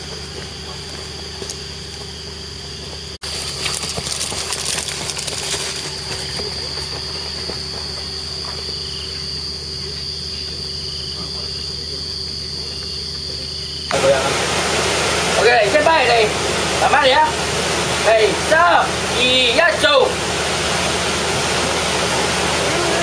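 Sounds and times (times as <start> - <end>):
night insects trilling: 0.0 - 14.4, 15.3 - 23.0
low hum: 0.0 - 23.0.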